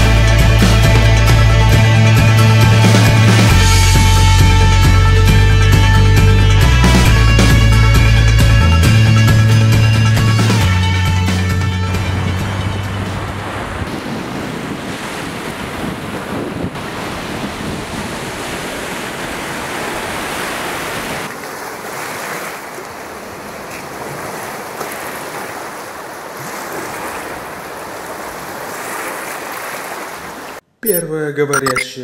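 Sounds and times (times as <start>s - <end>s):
wind: 10.7s - 31.8s
ocean surf washing on shore: 12.0s - 30.6s.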